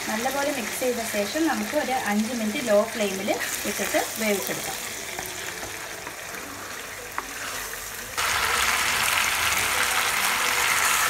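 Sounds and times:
meat and onions sizzling in pan: 0.0 - 11.0.

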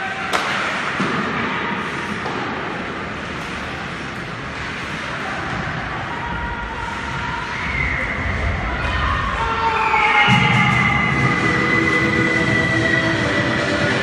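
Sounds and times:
skates on ice: 0.1 - 9.6
distant shouts: 5.1 - 12.7.

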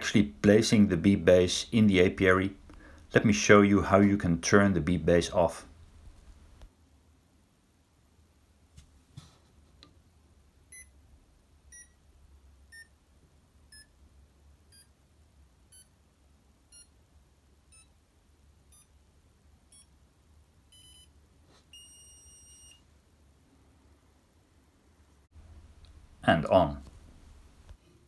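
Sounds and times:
electronic beeps: 20.7 - 21.1, 21.8 - 22.8.

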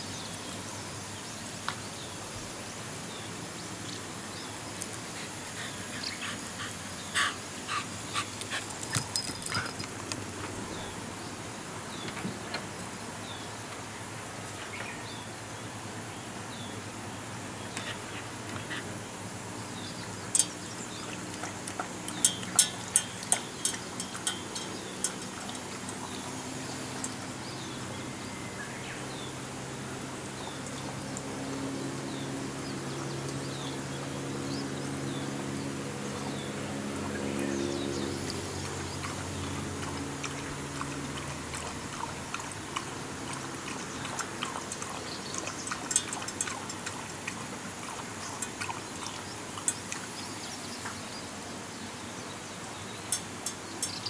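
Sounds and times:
dog lapping water: 5.0 - 10.0, 20.4 - 26.3, 38.3 - 50.2.

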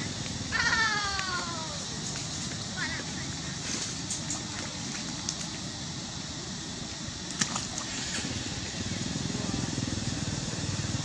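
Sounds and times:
small engine pulsing: 2.6 - 11.0.

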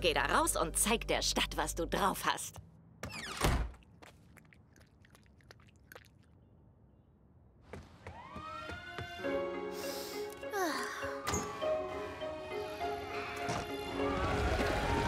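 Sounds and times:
siren-like wail: 8.1 - 9.0.

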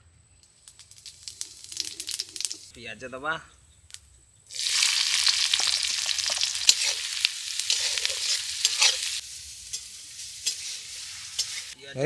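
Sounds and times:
onions sizzling in hot oil: 0.8 - 2.7, 4.5 - 11.8
metal spatula clinking and scraping: 5.6 - 11.8.

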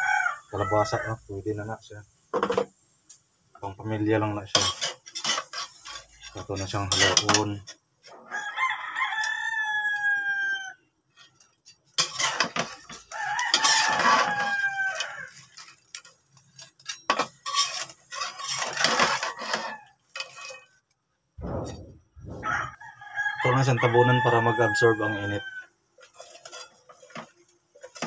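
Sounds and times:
rooster crowing: 0.0 - 1.2, 8.2 - 10.8, 12.9 - 15.4, 19.0 - 20.0, 22.3 - 25.7
metal spatula clattering on wok: 4.5 - 7.6, 11.8 - 20.6, 26.0 - 28.0.

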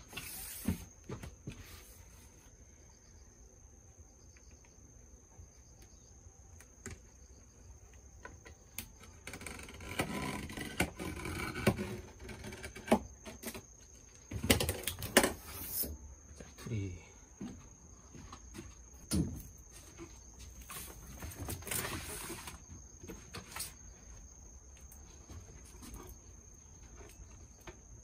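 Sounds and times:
scraping on plastic sheet: 0.0 - 0.9, 19.8 - 23.8.

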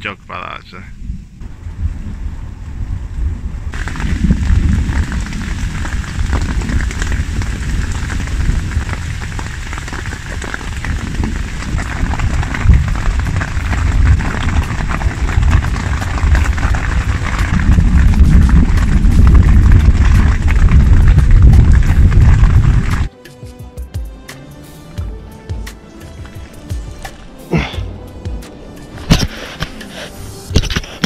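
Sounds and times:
deep thunder rumble: 1.0 - 23.1
heavy rain falling: 3.7 - 23.1, 26.1 - 30.0.

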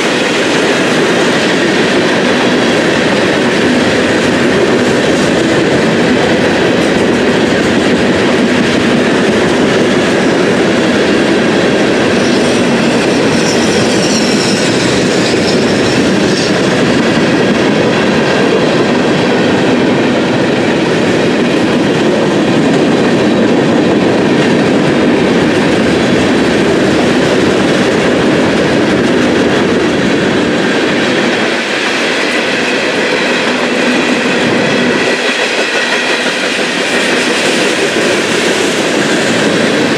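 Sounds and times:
train wheels rumbling and clattering: 0.0 - 39.9
high wheel squeal: 12.0 - 16.6.

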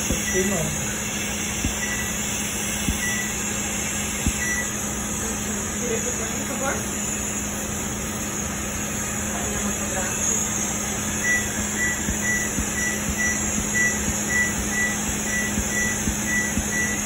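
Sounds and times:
machine beeping: 0.0 - 5.0, 10.2 - 17.0
low hum: 11.2 - 17.0.

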